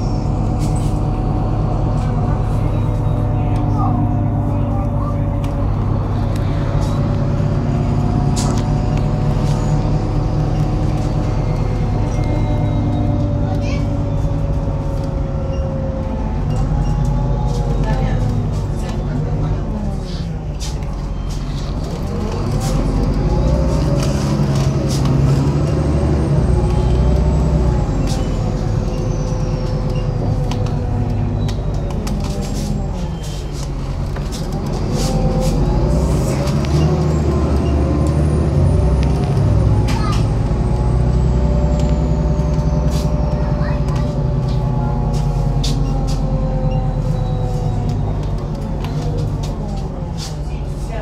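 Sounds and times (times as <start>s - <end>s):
bus engine droning: 0.0s - 51.0s.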